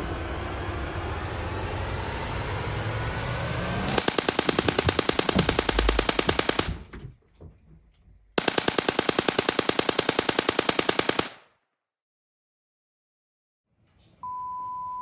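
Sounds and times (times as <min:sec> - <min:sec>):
rapid machine-gun fire: 0:03.9 - 0:07.1, 0:08.4 - 0:11.5.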